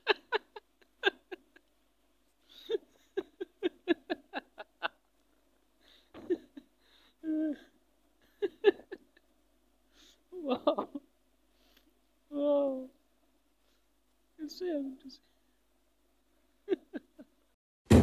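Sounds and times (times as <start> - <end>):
person giggling: 0.0 - 1.7, 2.5 - 5.1, 6.0 - 9.2, 10.4 - 11.0, 16.7 - 17.4.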